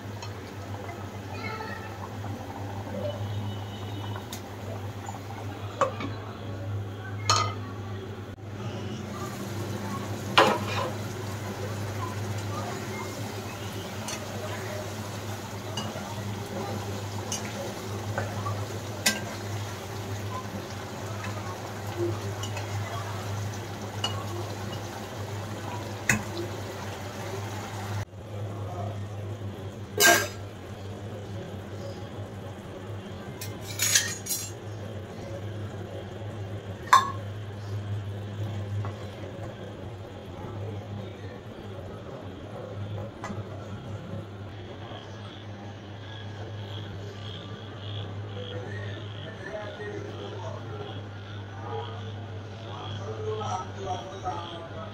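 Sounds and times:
curry bubbling in pan: 0.0 - 6.8, 8.4 - 44.6.

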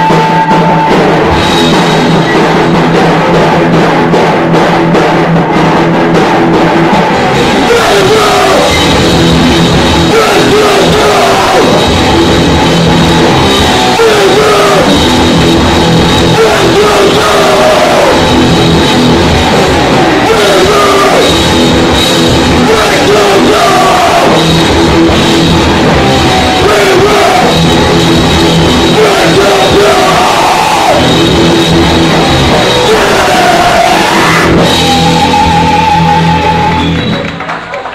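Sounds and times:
bass guitar: 0.0 - 37.6
distorted electric guitars: 0.0 - 37.6
drums: 0.0 - 37.9
person singing into microphone: 7.6 - 8.9, 10.1 - 11.9, 13.8 - 15.0, 16.3 - 18.3, 20.2 - 21.3, 22.5 - 24.4, 26.3 - 27.6, 28.9 - 31.1, 32.6 - 36.6.

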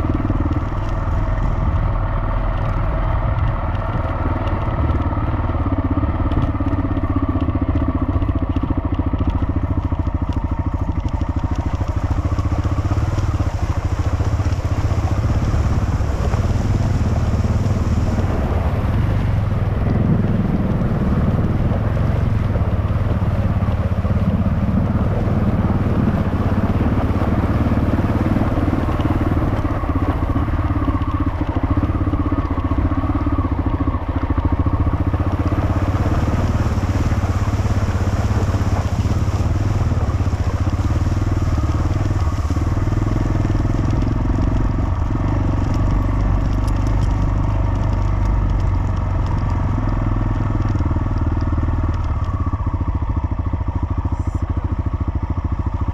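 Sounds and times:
motorcycle engine running: 0.0 - 55.9
tyres rolling on gravel: 34.4 - 52.4.

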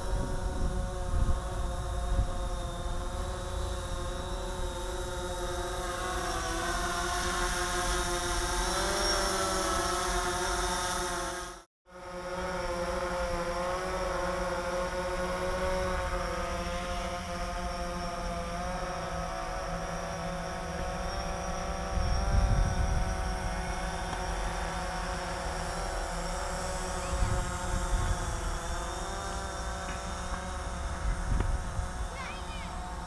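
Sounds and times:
wind buffeting microphone: 0.0 - 4.5, 21.6 - 24.1, 26.9 - 28.9, 30.1 - 32.3
drone propellers whining: 0.0 - 33.0.

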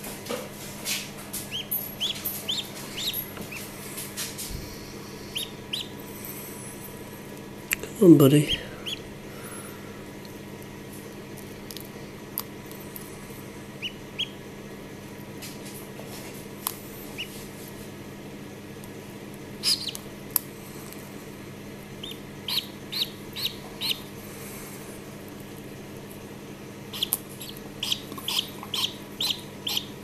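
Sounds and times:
steady low hum: 0.0 - 30.0
duckling peeping: 1.5 - 3.8, 4.6 - 6.1, 8.5 - 9.1, 13.8 - 14.4, 17.1 - 17.4, 19.6 - 20.1, 22.0 - 24.2, 26.9 - 30.0.

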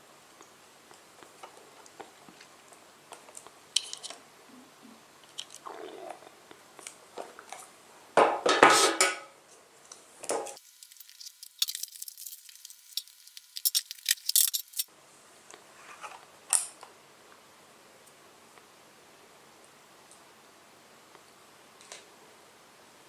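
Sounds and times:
small crackles and clicks: 0.3 - 4.2, 5.2 - 7.7, 9.8 - 14.9.

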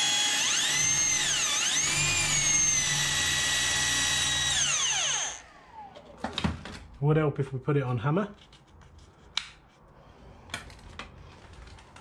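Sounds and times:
electric drill spinning: 0.0 - 6.1.

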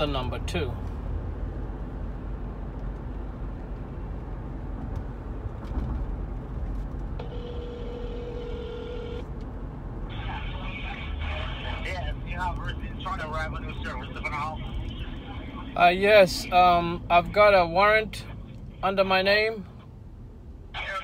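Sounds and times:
car cabin road rumble: 0.0 - 21.0
phone ringback tone: 7.2 - 9.2
voice on phone line: 10.1 - 19.6, 20.8 - 21.0.

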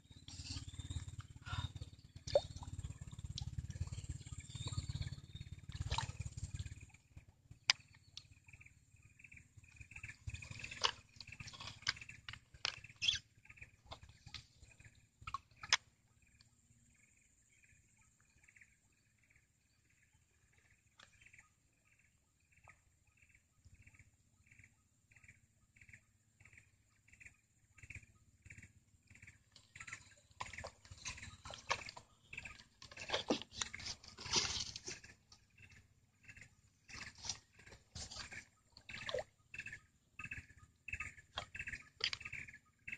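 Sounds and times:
animal chirping: 12.7 - 13.3.

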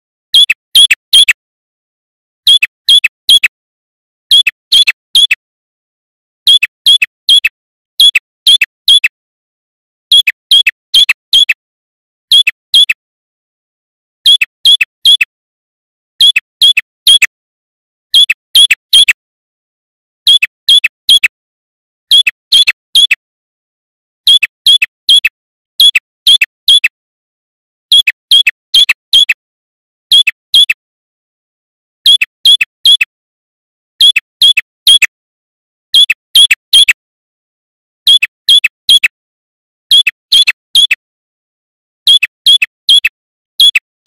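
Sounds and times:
bird chirping high and sharp: 0.3 - 1.4, 2.4 - 3.6, 4.3 - 5.4, 6.5 - 9.2, 10.1 - 11.6, 12.3 - 13.0, 14.2 - 15.3, 16.2 - 17.3, 18.1 - 19.2, 20.3 - 21.3, 24.3 - 27.0, 27.9 - 29.4, 32.0 - 33.1, 34.0 - 35.1, 35.9 - 37.0, 38.1 - 39.1, 39.9 - 41.0, 42.1 - 43.8.

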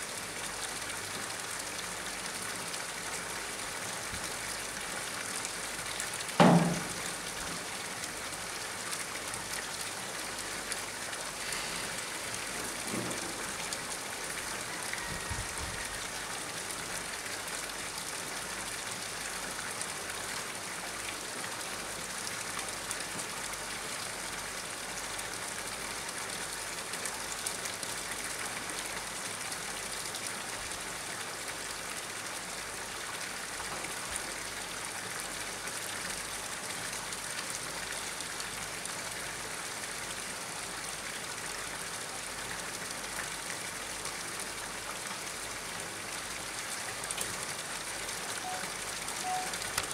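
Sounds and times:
water splashing into pond: 0.0 - 49.9
sharp thump: 6.4 - 6.9.

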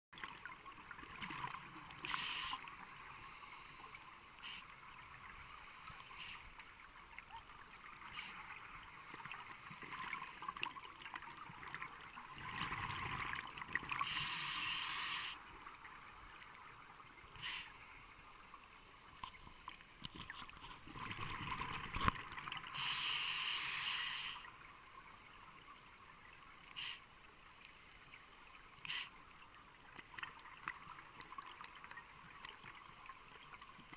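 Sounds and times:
steady underwater hiss: 0.4 - 33.9.

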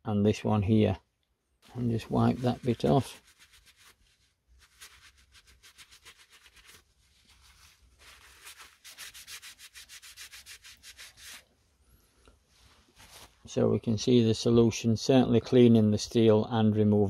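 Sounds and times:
cloth scrubbing on steel: 1.6 - 11.5.

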